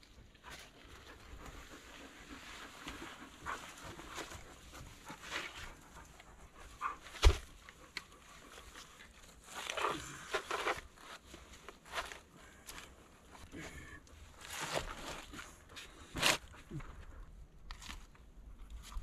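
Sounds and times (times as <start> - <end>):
dog panting and sniffing: 0.2 - 12.3.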